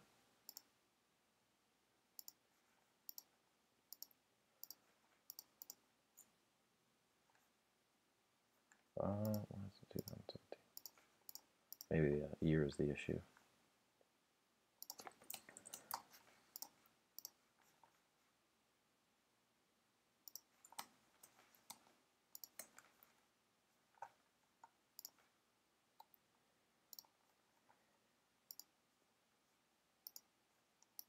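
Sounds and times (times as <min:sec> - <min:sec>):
computer mouse clicks: 0:00.5 - 0:00.7, 0:02.2 - 0:02.4, 0:03.1 - 0:03.3, 0:03.9 - 0:06.4, 0:08.7 - 0:11.9, 0:14.8 - 0:17.4, 0:20.2 - 0:23.2, 0:24.0 - 0:25.2, 0:26.0 - 0:26.2, 0:26.9 - 0:27.2, 0:28.5 - 0:28.8, 0:30.0 - 0:31.0.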